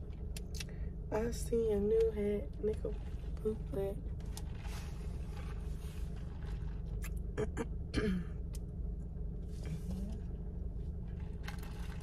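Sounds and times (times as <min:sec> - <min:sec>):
low background hum: 0:00.0 - 0:12.0
person clearing throat: 0:07.4 - 0:08.4.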